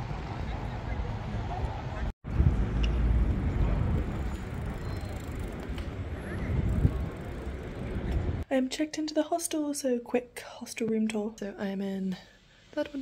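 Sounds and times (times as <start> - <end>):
faint voices of people passing: 3.4 - 8.4.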